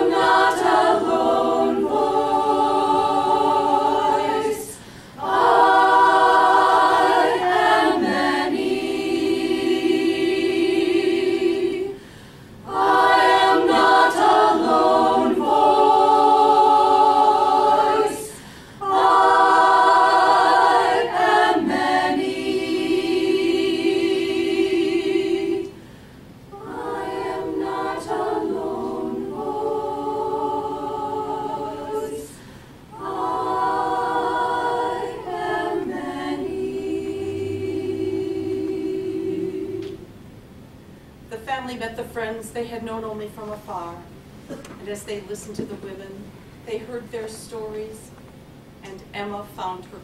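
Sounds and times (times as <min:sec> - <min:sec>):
women's choir singing a cappella: 0:00.0 - 0:25.9, 0:26.5 - 0:40.2.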